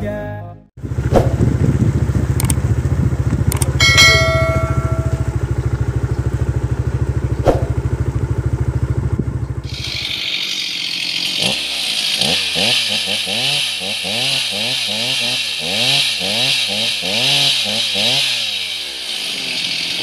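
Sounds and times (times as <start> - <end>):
truck engine rumbling: 0.8 - 20.0
brief high tone: 3.8 - 5.5
sharp knocks: 7.4 - 7.8
chainsaw cutting wood: 9.7 - 20.0.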